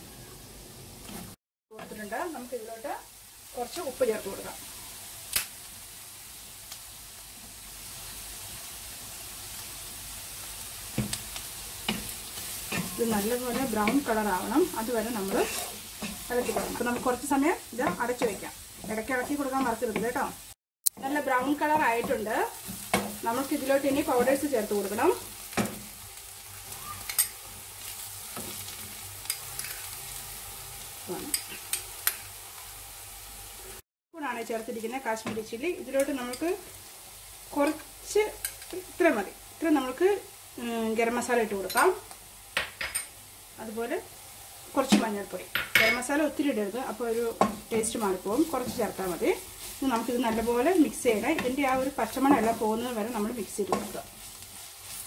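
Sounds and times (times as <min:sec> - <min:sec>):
onions sizzling in hot oil: 0:00.0 - 0:55.0
spatula scraping a pan: 0:11.8 - 0:17.2, 0:26.5 - 0:30.2.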